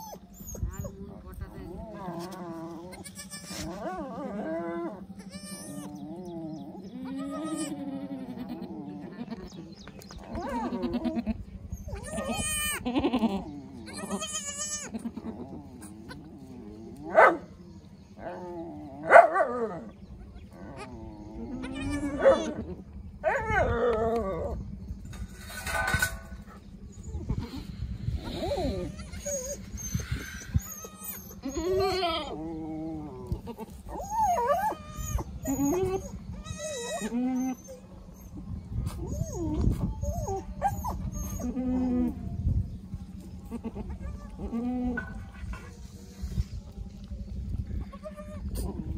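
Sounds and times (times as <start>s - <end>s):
goats bleating: 2.2s - 3.8s, 5.2s - 6.0s, 7.0s - 9.6s, 10.6s - 11.4s, 12.0s - 16.3s, 20.8s - 22.6s, 43.4s - 45.2s.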